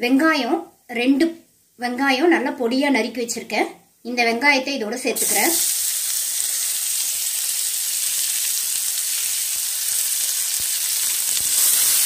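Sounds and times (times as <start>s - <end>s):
onions sizzling in hot oil: 5.2s - 12.0s.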